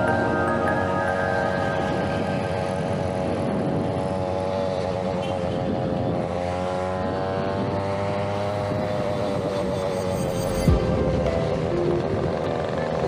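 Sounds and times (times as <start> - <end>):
two-stroke scooter engine buzzing: 1.2 - 10.2.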